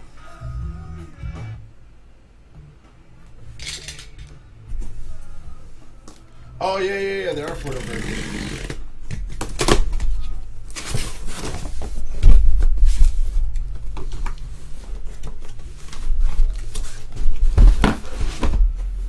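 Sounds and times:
cardboard scraping and rustling: 10.7s - 13.4s.

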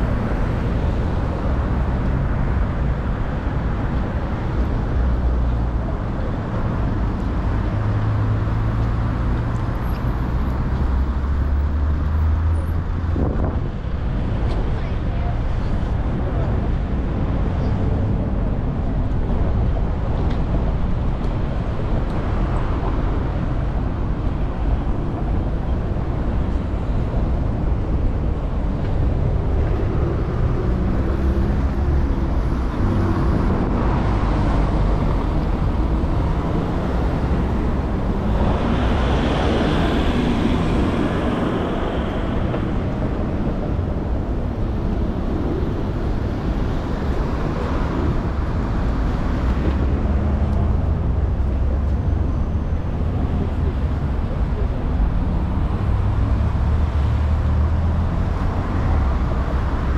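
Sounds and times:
cars passing: 0.0s - 59.9s
loud vehicle passing: 26.2s - 59.9s.

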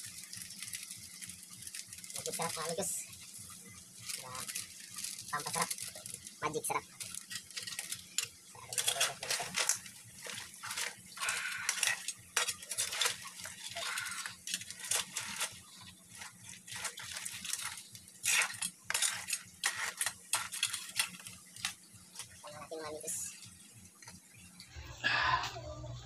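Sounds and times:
utensils scraping metal wok: 4.0s - 23.5s.

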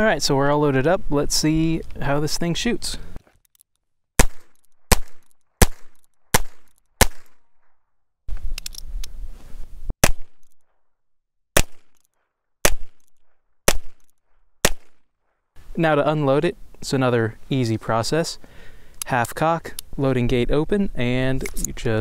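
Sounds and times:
revolver gunshots: 4.2s - 7.4s, 11.6s - 12.0s, 12.6s - 13.1s, 13.7s - 15.0s.

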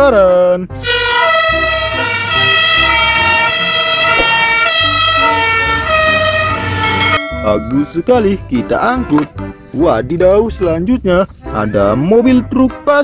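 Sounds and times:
two-tone fire engine siren: 0.8s - 7.9s.

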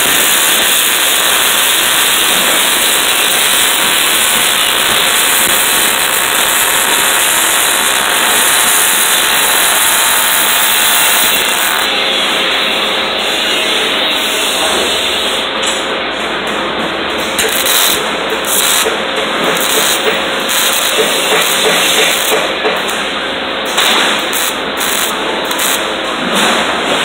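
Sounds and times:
welding arc crackling hiss: 0.0s - 11.9s, 17.3s - 23.0s, 23.7s - 26.0s.

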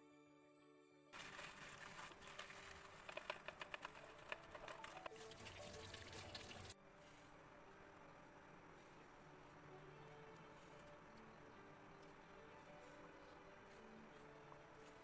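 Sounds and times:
tap water running over tomatoes: 4.4s - 6.8s.

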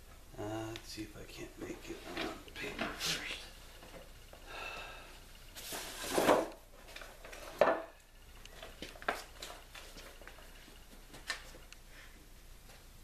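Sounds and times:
rustling scrape: 5.5s - 7.6s.

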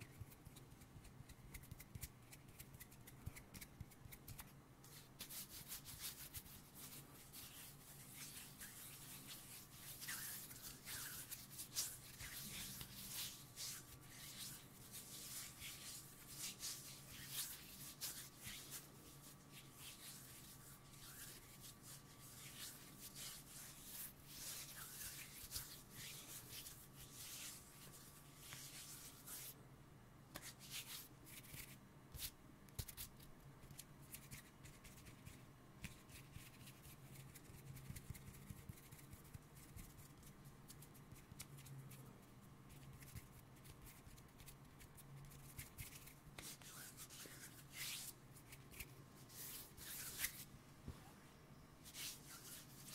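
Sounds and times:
hands rubbing together: 0.1s - 29.6s, 45.4s - 50.5s, 51.8s - 52.9s.

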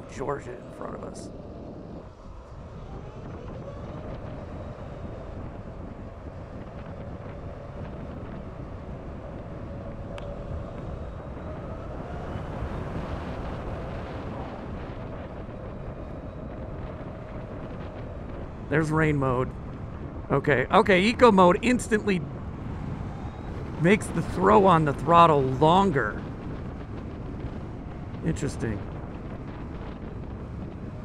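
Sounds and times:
wind rush: 0.0s - 31.0s
electric motor whine: 0.8s - 18.7s
tyre noise on road: 1.3s - 31.0s.

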